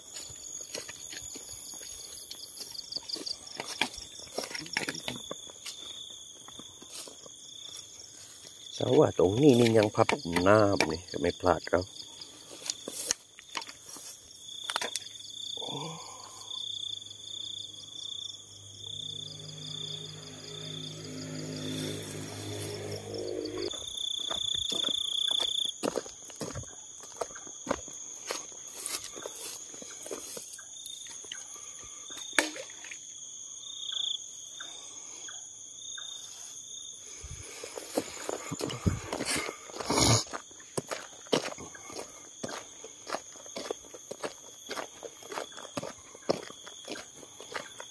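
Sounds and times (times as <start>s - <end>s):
footsteps: 0.0s - 8.6s, 20.1s - 30.6s, 37.4s - 47.9s
grass rustling: 0.0s - 8.7s, 12.1s - 15.0s, 19.3s - 30.6s
crickets chirping: 0.0s - 47.9s
low steady drone: 18.8s - 23.7s.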